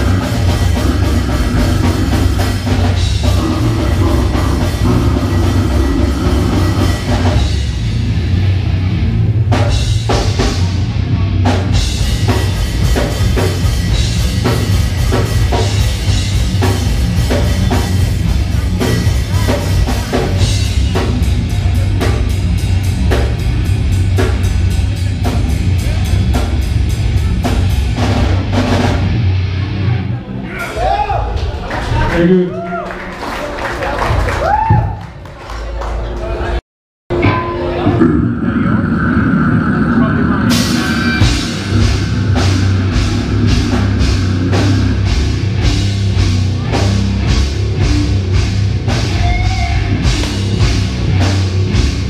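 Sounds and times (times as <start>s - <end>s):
pounding drums: 0.0s - 29.2s, 40.0s - 52.0s
distorted electric guitar: 0.0s - 30.8s, 37.1s - 52.0s
death metal band playing live: 0.0s - 31.9s, 37.1s - 52.0s.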